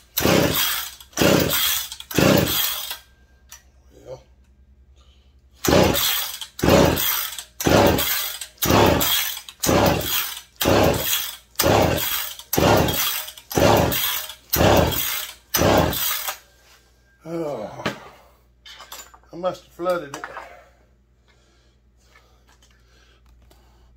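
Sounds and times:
chainsaw recoil starter pulls: 0.1 - 3.0, 5.6 - 16.4.

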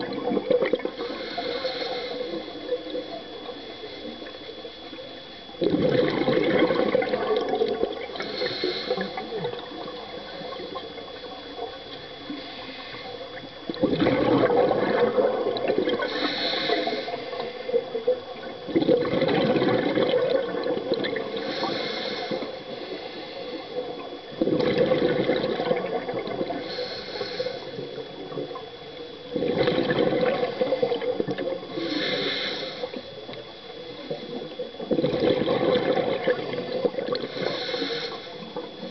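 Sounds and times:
exhaled bubbles rushing: 0.0 - 1.4, 2.1 - 11.9, 13.3 - 21.8, 23.7 - 26.7, 27.7 - 32.2, 32.8 - 37.6
regulator inhalation hiss: 0.9 - 4.3, 8.0 - 10.8, 12.2 - 13.4, 16.0 - 18.0, 21.3 - 24.1, 26.4 - 28.5, 30.4 - 34.6, 36.6 - 38.9.

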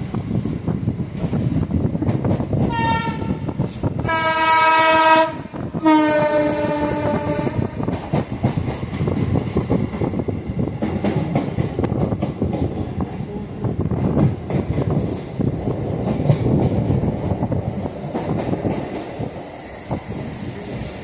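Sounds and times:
train rumble: 0.0 - 21.0
train horn blasts: 2.7 - 7.8.

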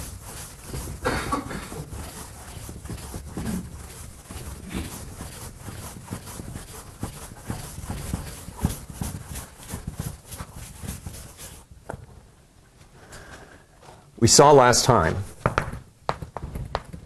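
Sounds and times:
writing taps and scrapes on board: 15.4 - 17.0.

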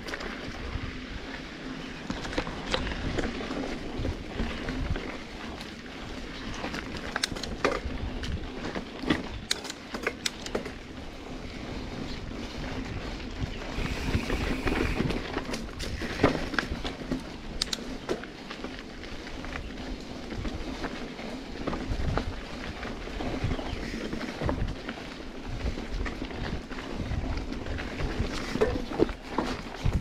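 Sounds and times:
tyres rolling over dirt: 0.0 - 30.0
wind on microphone: 2.0 - 9.6, 10.2 - 17.8, 21.7 - 30.0
bike rattling clicks: 2.0 - 13.1, 13.7 - 30.0.

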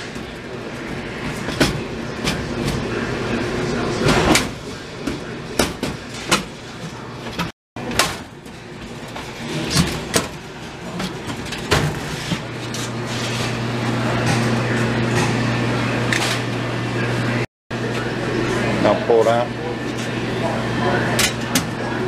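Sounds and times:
steady low hum: 0.0 - 22.0
wire shelves clanking: 4.0 - 16.5.

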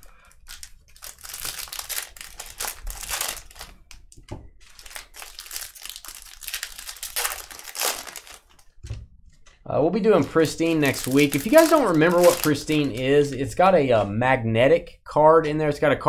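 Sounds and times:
wrappers crinkling and tearing: 0.0 - 8.8, 10.2 - 13.6.

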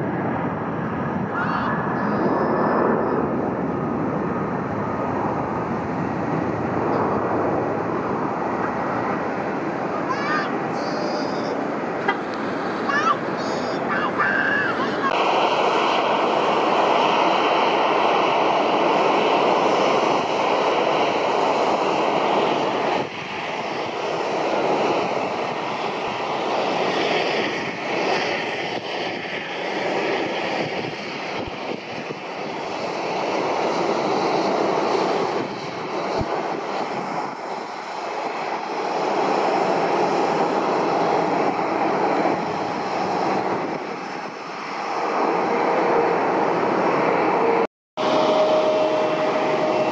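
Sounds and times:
jet taking off: 0.0 - 49.9.

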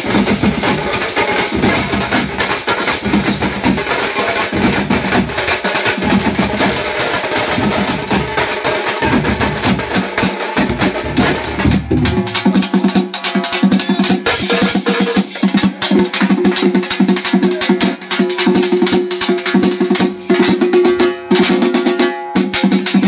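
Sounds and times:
bass drums: 0.0 - 13.0
side drums beaten with sticks: 0.0 - 23.0.

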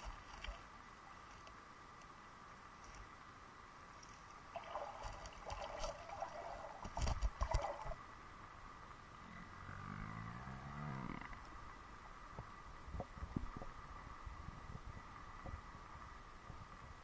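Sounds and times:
underwater gravel crunching: 4.0 - 8.0.

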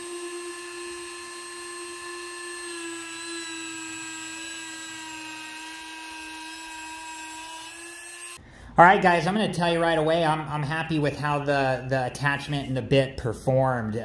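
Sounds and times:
rotary tool high-pitched whine: 0.0 - 8.4.

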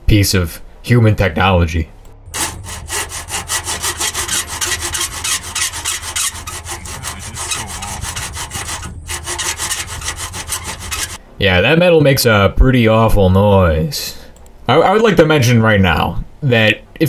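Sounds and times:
hacksaw cutting metal: 2.4 - 11.2.

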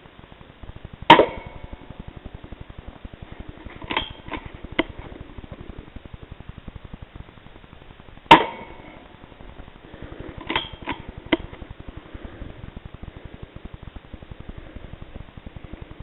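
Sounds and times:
faint fast pulsing: 0.0 - 16.0
quiet clicks: 0.0 - 16.0
suppressed rifle shot: 1.1 - 2.5, 8.3 - 9.0.

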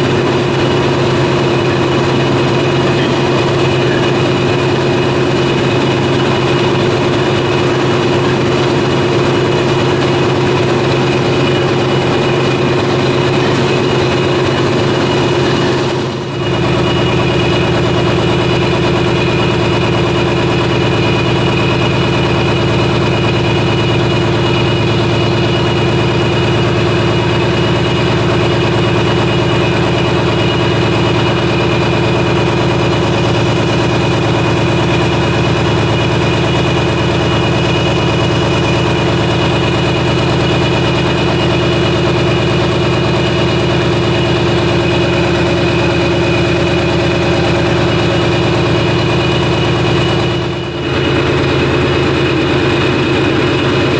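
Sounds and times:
marine diesel engine hum: 0.0 - 53.9.

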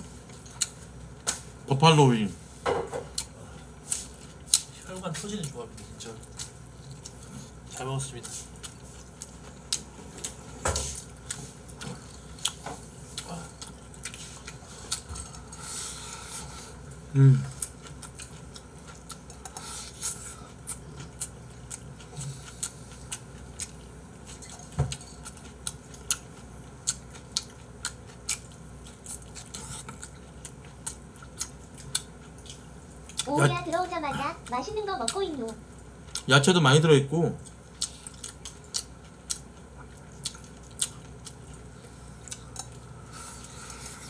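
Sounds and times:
wet chewing and lip-smacking: 5.4 - 15.6, 17.6 - 33.3, 36.0 - 36.3, 37.4 - 44.0.

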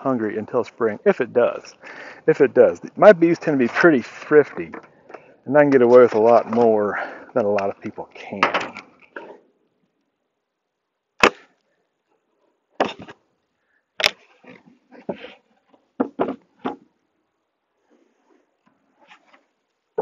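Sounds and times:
metal tool prying wood: 11.2 - 11.4
wooden knocks and scrapes: 14.0 - 16.8.

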